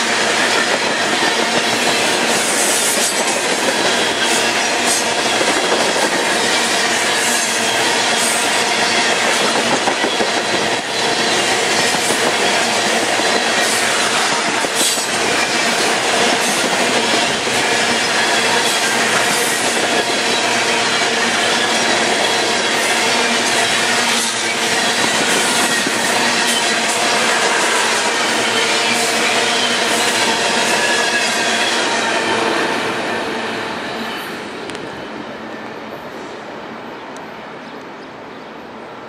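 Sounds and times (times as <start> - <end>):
train wheels rumbling and clacking: 0.0 - 36.4
wheels squealing on rail: 0.0 - 36.4.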